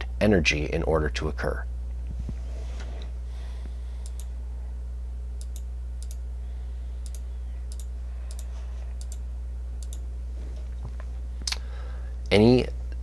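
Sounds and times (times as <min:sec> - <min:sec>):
steady low hum: 0:00.0 - 0:13.0
computer mouse clicking: 0:04.0 - 0:04.3, 0:05.4 - 0:06.2, 0:07.0 - 0:09.2, 0:09.8 - 0:10.0.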